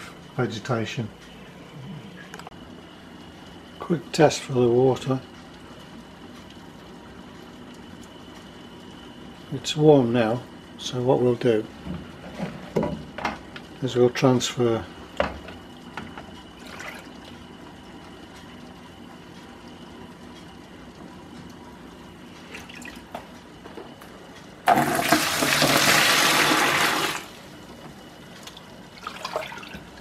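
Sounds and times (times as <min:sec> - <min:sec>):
water pouring into a bucket: 0:16.6 - 0:17.2, 0:24.7 - 0:27.4, 0:29.0 - 0:29.9
jug dipped into water: 0:24.7 - 0:27.3.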